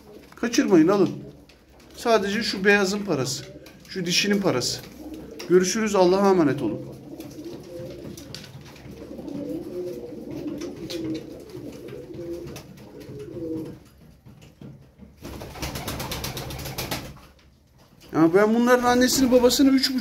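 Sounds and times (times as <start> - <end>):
pigeons cooing: 1.0 - 13.9.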